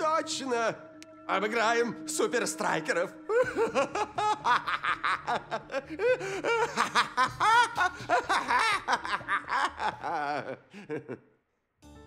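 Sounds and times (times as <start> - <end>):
man laughing: 3.3 - 11.4.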